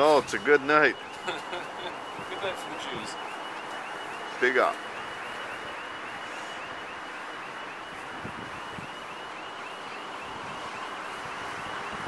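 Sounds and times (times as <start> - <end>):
distant surf: 0.0 - 12.0
distant traffic: 0.0 - 12.0
wind on microphone: 8.0 - 9.0.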